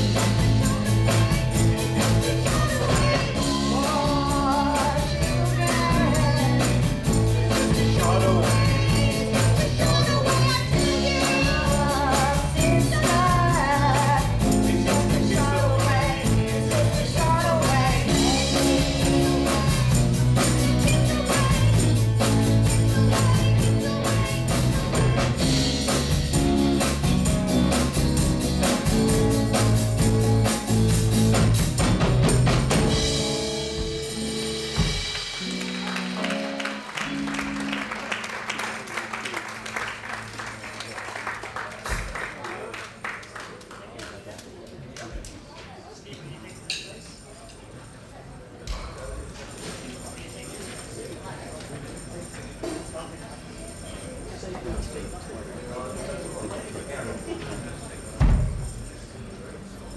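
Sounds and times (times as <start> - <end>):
steady drum beat: 0.0 - 37.9
electric guitars: 0.0 - 40.9
woman singing: 0.2 - 26.0.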